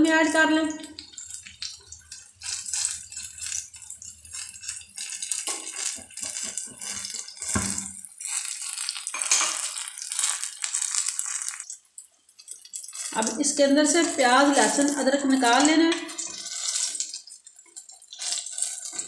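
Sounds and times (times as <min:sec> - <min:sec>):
oil sizzling and crackling: 0:00.2 - 0:19.0
spoon knocking in pan: 0:05.4 - 0:08.0, 0:09.1 - 0:09.8.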